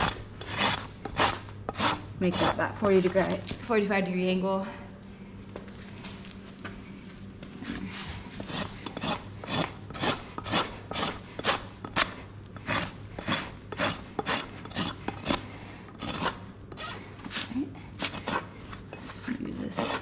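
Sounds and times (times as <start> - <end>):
hoof rasp scraping: 0.0 - 3.5, 7.6 - 19.0.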